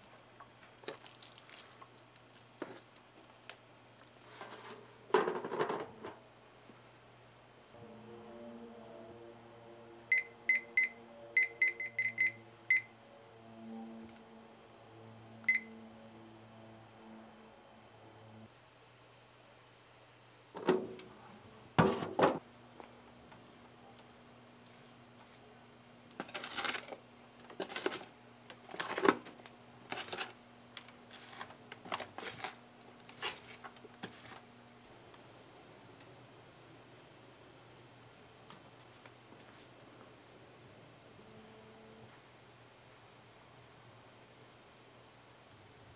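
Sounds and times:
foil pan crinkling: 0.7 - 5.7, 26.1 - 34.5
spoon scraping soil: 0.9 - 5.0
kitchen timer beeps: 10.1 - 12.9, 15.5 - 15.8.

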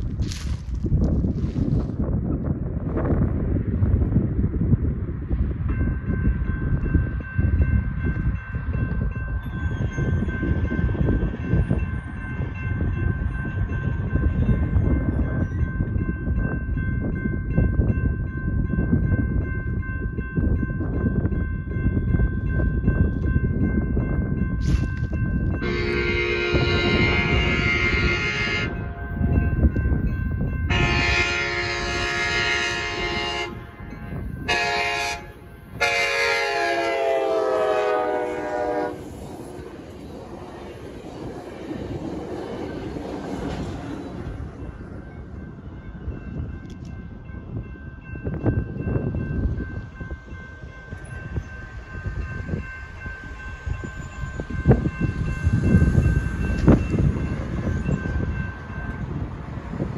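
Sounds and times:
train rumble: 0.0 - 59.9
crossing bell ringing: 5.6 - 59.9
train horn blasts: 25.6 - 29.0, 30.6 - 39.2.

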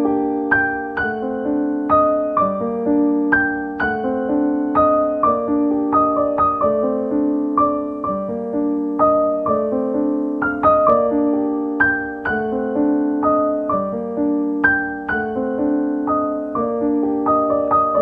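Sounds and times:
piano music: 0.0 - 18.0.

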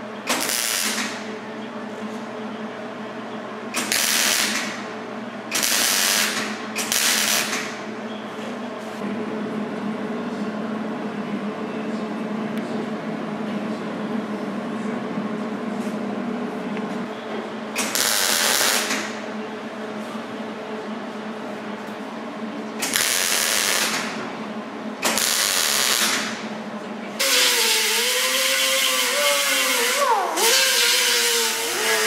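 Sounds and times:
welding arc crackle: 0.3 - 1.2, 3.8 - 4.8, 5.5 - 7.8, 17.8 - 19.2, 22.8 - 24.1, 25.0 - 26.3, 27.2 - 32.0.

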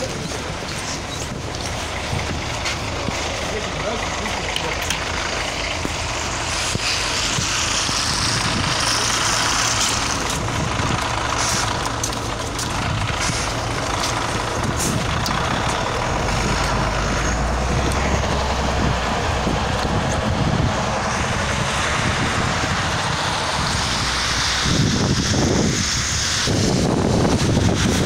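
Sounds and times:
bus diesel engine running: 0.0 - 28.0
compressed air hissing: 6.1 - 10.3.

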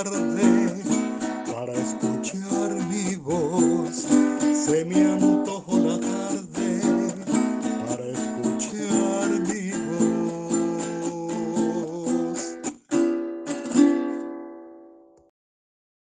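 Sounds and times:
small guitar strummed in waltz time: 0.0 - 15.3.

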